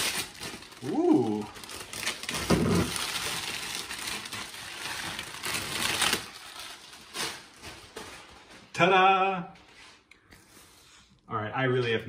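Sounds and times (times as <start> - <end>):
plastic bag crinkling: 0.0 - 8.8.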